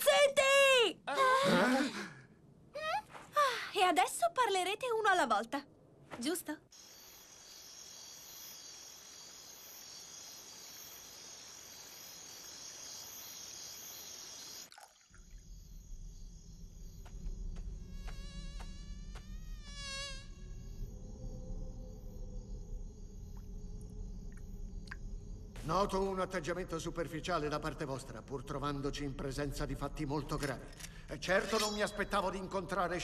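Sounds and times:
insects chirring: 0:06.2 - 0:33.0
low hum: 0:20.2 - 0:27.4.

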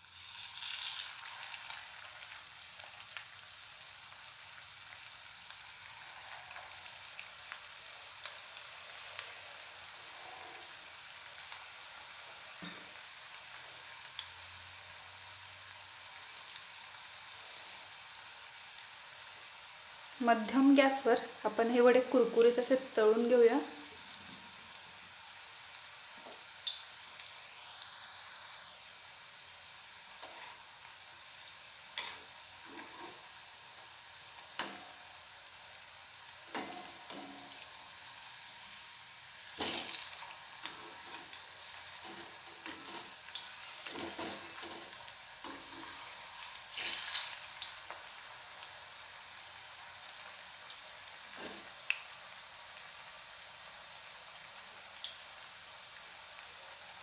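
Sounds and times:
food sizzling in hot oil: 0:00.0 - 0:57.0
slotted spoon turning food in pan: 0:30.2 - 0:30.6, 0:31.9 - 0:35.1, 0:36.4 - 0:37.8, 0:39.4 - 0:48.0.

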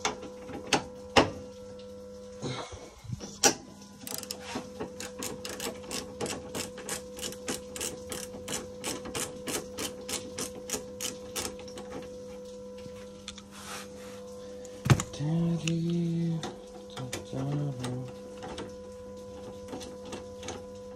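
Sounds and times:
ratchet wrench clicking: 0:04.0 - 0:04.4, 0:05.0 - 0:11.6.

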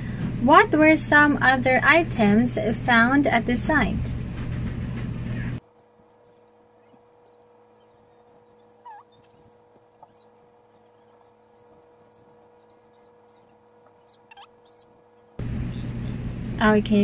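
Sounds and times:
steady low hum: 0:00.0 - 0:17.0
faint high chirps: 0:06.8 - 0:15.0.

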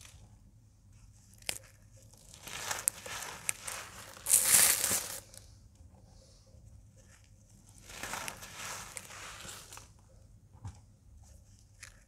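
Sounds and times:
cornstarch blocks crunching: 0:01.3 - 0:05.4, 0:07.8 - 0:09.9.

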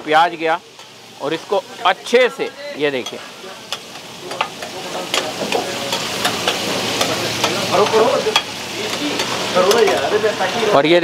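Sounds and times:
food sizzling on griddle: 0:00.0 - 0:11.0.

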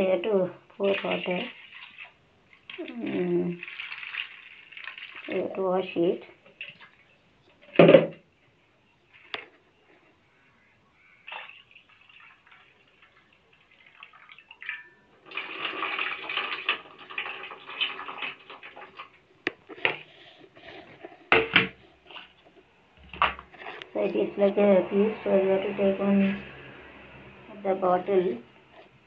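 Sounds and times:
water splashing in a bowl: 0:00.8 - 0:08.0, 0:11.2 - 0:19.3, 0:21.3 - 0:23.6.

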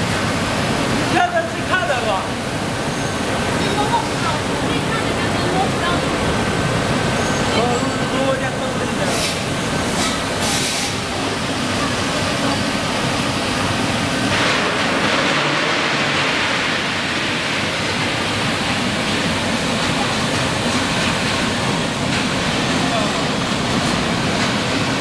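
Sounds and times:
short high hisses: 0:09.0 - 0:11.0.

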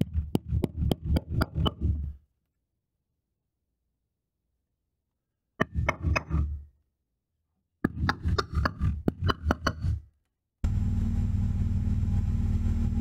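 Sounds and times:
hammer tapping steel tube: 0:07.8 - 0:10.0.

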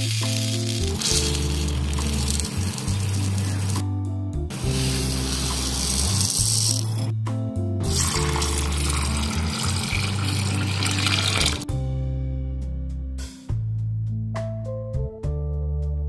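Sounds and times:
background music: 0:00.0 - 0:16.0
tap water pouring into bowl: 0:07.9 - 0:11.6.

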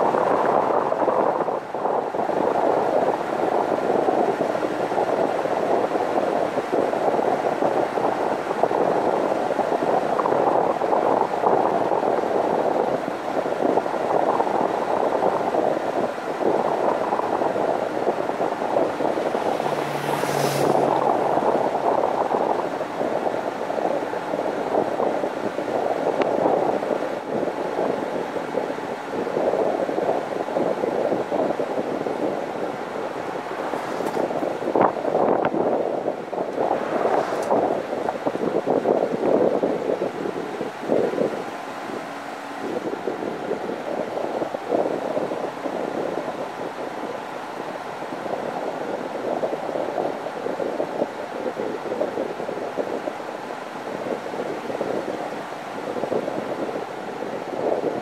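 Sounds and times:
road noise: 0:00.0 - 0:58.0
wind buffeting microphone: 0:00.0 - 0:58.0
sharp hiss: 0:19.3 - 0:21.2.

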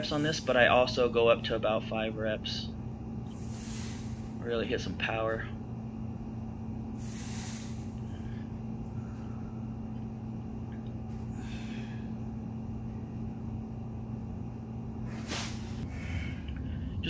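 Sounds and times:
steady low hum: 0:00.0 - 0:17.0
man's sharp breaths of effort: 0:03.3 - 0:04.4, 0:07.0 - 0:09.8, 0:11.3 - 0:12.2, 0:15.1 - 0:17.0.

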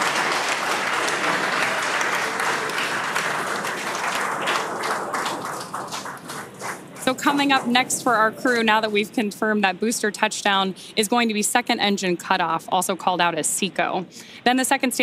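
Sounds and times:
crowd applauding: 0:00.0 - 0:09.0.

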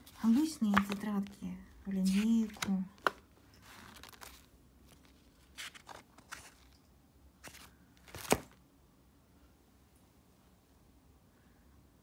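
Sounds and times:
paper rustling: 0:00.0 - 0:06.8, 0:07.4 - 0:08.6.

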